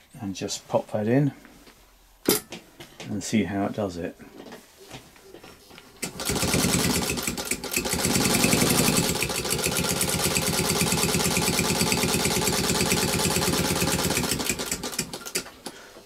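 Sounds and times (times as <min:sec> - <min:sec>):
sewing machine stitching leather: 0:06.0 - 0:15.6.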